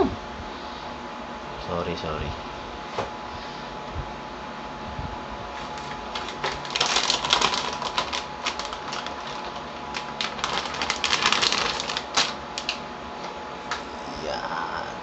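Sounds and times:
plastic bag crinkling: 0:05.6 - 0:12.8.

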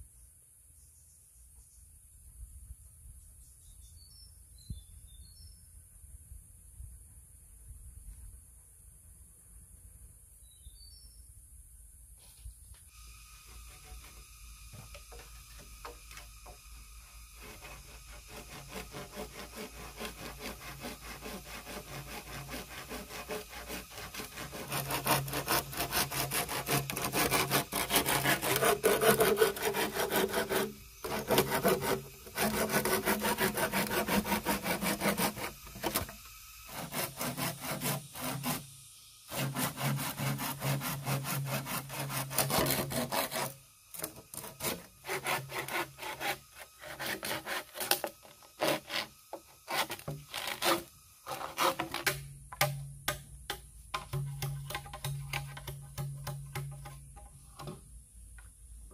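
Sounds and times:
hand saw cutting bamboo: 0:13.4 - 0:38.7, 0:39.3 - 0:53.2, 0:54.0 - 0:57.7.

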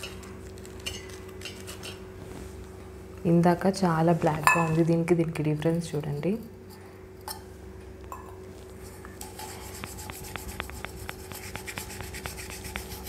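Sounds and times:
scratchy scrubbing of silver cup: 0:08.8 - 0:13.0.

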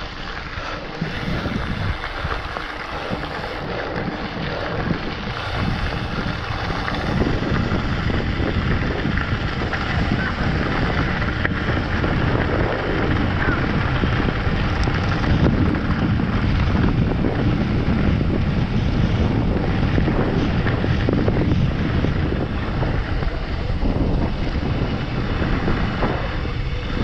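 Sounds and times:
bike tyres rumbling on gravel: 0:00.0 - 0:27.0
wind buffeting microphone: 0:00.0 - 0:27.0.

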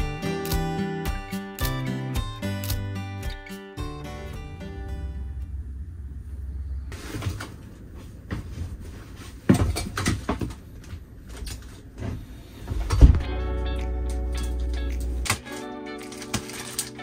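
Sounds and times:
plastic rustling: 0:15.4 - 0:17.0.

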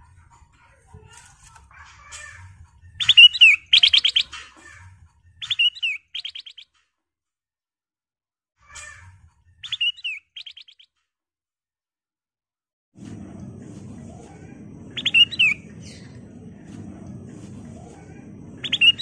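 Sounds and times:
bird singing whistles and rattles: 0:03.0 - 0:04.5, 0:05.4 - 0:06.8, 0:09.6 - 0:11.0, 0:14.9 - 0:16.3, 0:18.6 - 0:19.0.

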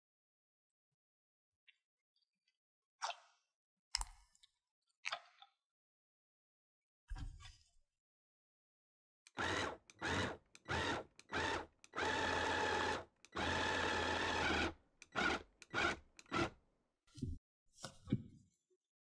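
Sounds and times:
electric hand blender pulsing: 0:09.3 - 0:16.5.

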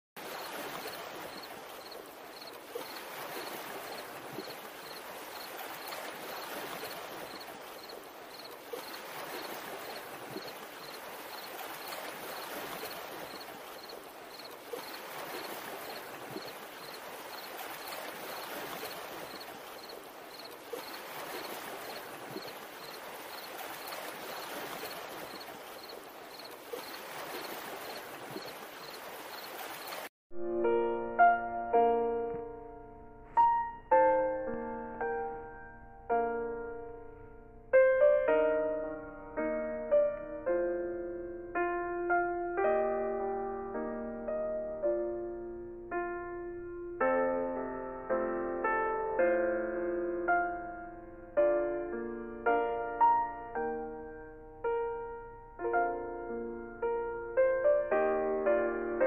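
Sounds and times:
water lapping and rushing: 0:00.2 - 0:30.1
faint high chirp: 0:00.3 - 0:05.5, 0:06.4 - 0:12.5, 0:22.3 - 0:24.5, 0:25.3 - 0:30.0.

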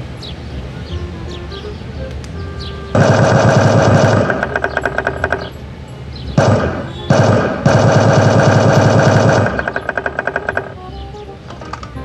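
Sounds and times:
recorded machine-gun fire: 0:02.9 - 0:05.5, 0:06.4 - 0:10.8.

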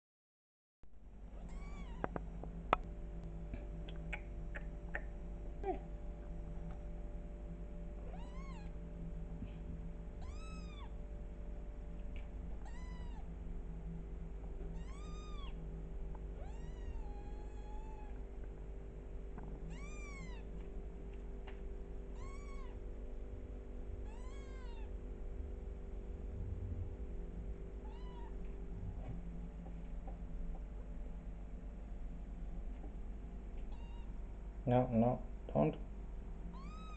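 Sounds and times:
steady low hum: 0:00.9 - 0:36.9
kitten mewing: 0:19.7 - 0:20.4, 0:22.2 - 0:22.8, 0:24.1 - 0:24.9, 0:27.8 - 0:28.4.

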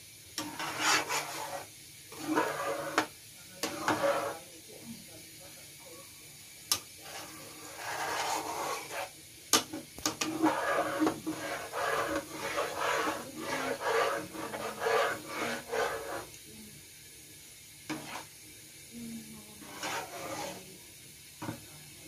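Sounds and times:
spatula scraping and stirring in pan: 0:00.4 - 0:04.5, 0:06.7 - 0:16.4, 0:17.8 - 0:18.4, 0:19.5 - 0:20.7, 0:21.4 - 0:21.7.

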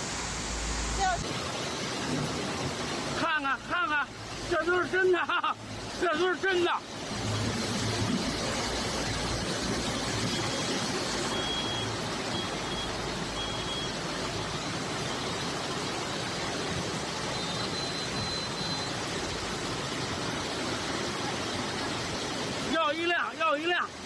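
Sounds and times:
floodwater rushing: 0:00.0 - 0:24.0
faint short electronic beeps: 0:10.3 - 0:14.0, 0:17.3 - 0:19.0.

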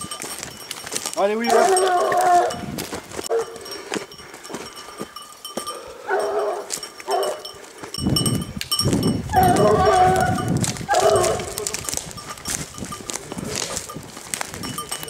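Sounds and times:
rustling through forest litter: 0:00.0 - 0:04.0, 0:09.4 - 0:15.0
hunting dog baying: 0:01.2 - 0:04.4, 0:05.7 - 0:07.9, 0:09.3 - 0:11.9.

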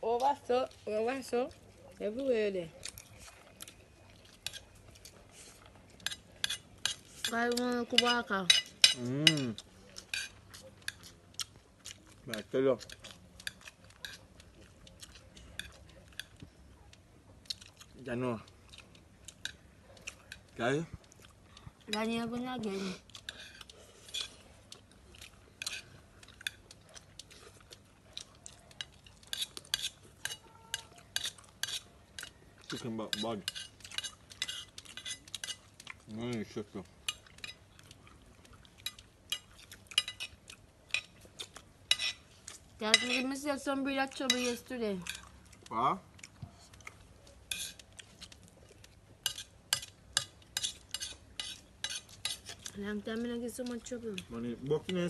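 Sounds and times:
spoons clinking against bowls: 0:06.0 - 0:10.3, 0:28.8 - 0:35.6, 0:38.8 - 0:40.3, 0:41.9 - 0:42.2, 0:42.8 - 0:43.3, 0:44.2 - 0:45.2.

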